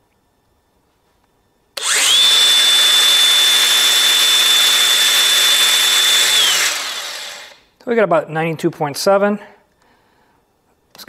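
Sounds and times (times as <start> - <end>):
angle grinder high whine: 1.8 - 7.7.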